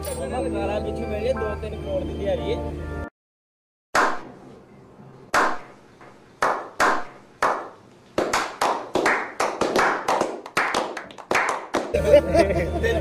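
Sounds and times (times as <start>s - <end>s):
men clapping: 6.4s - 12.0s.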